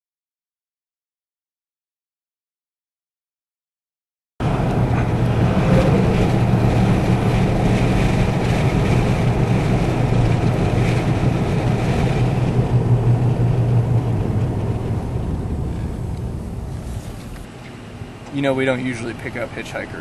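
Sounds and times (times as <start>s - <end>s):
tyre and wind rush: 4.4s - 17.5s
car cabin engine drone: 4.4s - 20.0s.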